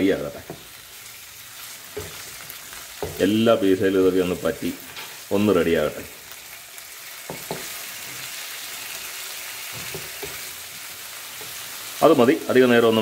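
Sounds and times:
chicken sizzling in hot oil: 0.0 - 13.0
spatula knocking against pan: 7.3 - 7.7.

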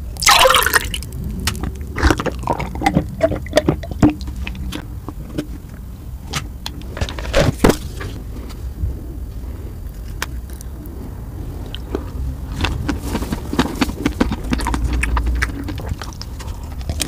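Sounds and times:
person gulping juice: 0.0 - 4.8
steady low hum: 0.0 - 17.0
wet mouth clicks and smacks: 13.7 - 17.0.

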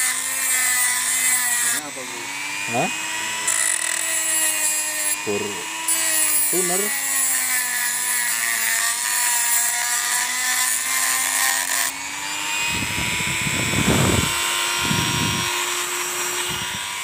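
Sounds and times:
rotary tool motor whine: 0.0 - 17.0.

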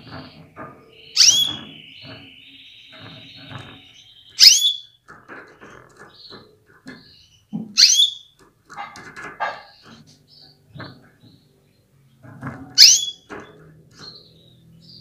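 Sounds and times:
canary calls: 0.1 - 5.0, 7.0 - 10.6, 12.8 - 13.4.

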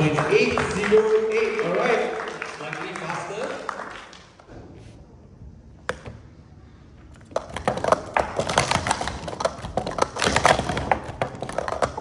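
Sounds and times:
plastic cups clattering: 7.2 - 12.0.

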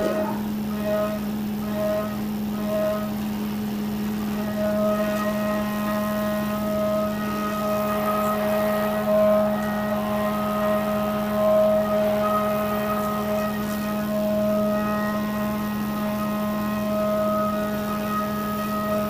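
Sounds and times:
high cutting whine: 0.0 - 19.0
milling machine spindle hum: 0.0 - 19.0.

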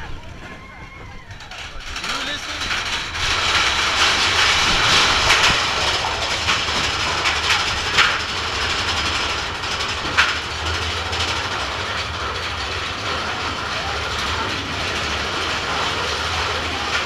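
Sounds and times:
roller coaster rumbling on track: 0.0 - 17.0
wheels clacking: 0.0 - 17.0.

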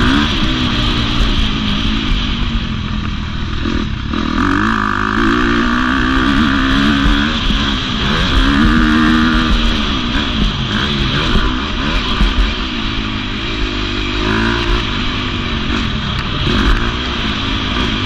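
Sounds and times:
motocross engine revving: 0.0 - 18.0.

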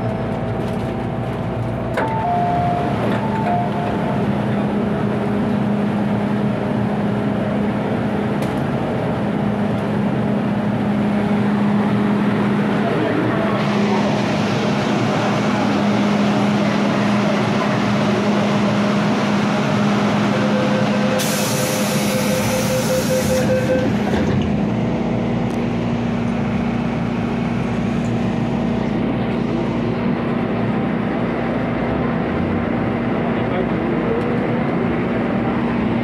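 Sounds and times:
train hum: 0.0 - 36.0
hiss: 21.2 - 23.4.

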